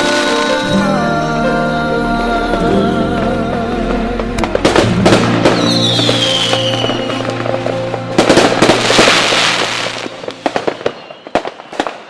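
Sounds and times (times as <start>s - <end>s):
background music chord: 0.0s - 12.0s
fireworks bangs and crackles: 3.2s - 12.0s.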